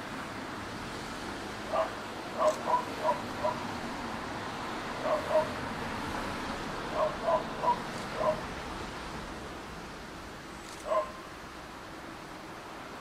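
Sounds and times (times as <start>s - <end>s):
short high yapping calls: 1.8s - 3.6s, 5.0s - 5.5s, 7.0s - 8.4s, 10.8s - 11.2s.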